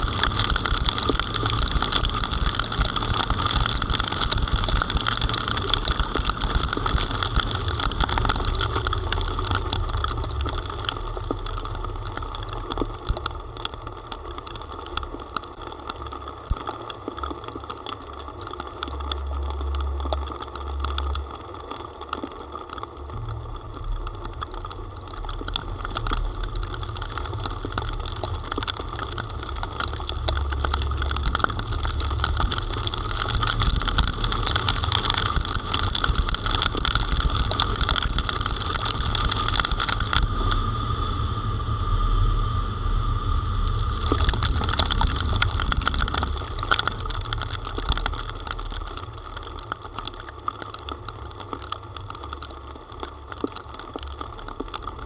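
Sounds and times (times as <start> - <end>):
rain ticking on car: 0.0 - 55.0
wet road noise: 0.0 - 55.0
car rumble: 22.8 - 49.6.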